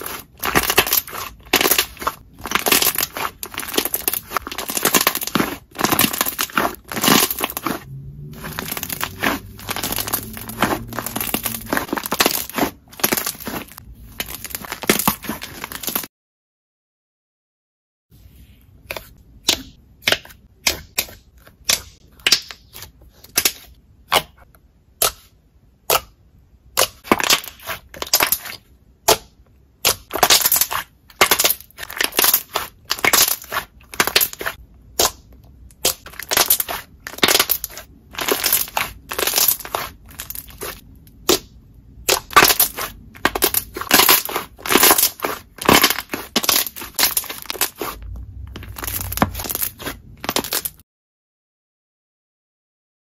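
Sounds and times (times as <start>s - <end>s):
slime crackling and popping: 0.0s - 16.1s, 29.8s - 50.8s.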